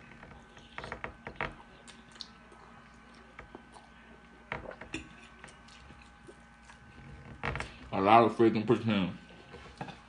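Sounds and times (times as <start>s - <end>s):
quiet chewing with wet smacks: 0.1s - 7.2s.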